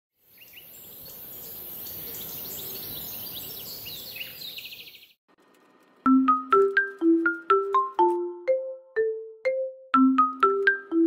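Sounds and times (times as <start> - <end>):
birds chirping and trilling: 0.2 - 5.2
constant high hiss: 5.3 - 8.1.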